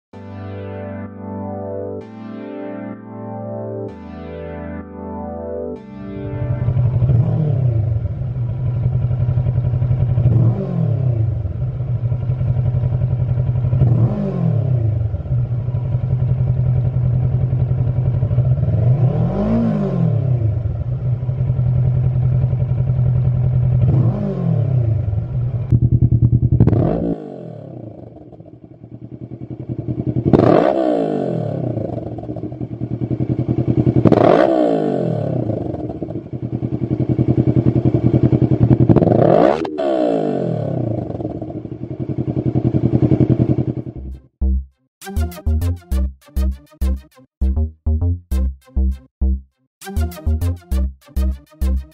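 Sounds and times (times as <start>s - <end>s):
motorcycle engine idling and revving: 6.3s - 44.6s.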